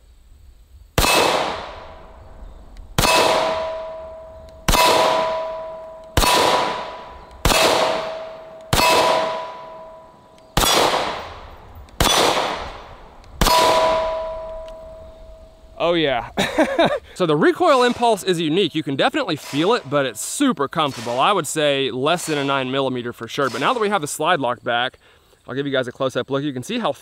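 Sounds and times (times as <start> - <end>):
pistol shots: 1.0 - 2.2, 3.0 - 14.8
steel target ringing: 3.0 - 12.6, 13.4 - 15.8.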